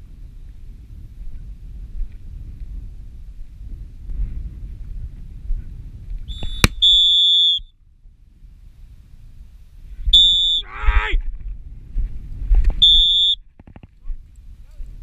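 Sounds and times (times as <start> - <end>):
wind rumbling on microphone: 0.0 - 15.0
dog-training whistle blasts: 6.3 - 7.7, 10.1 - 10.7, 12.8 - 13.4.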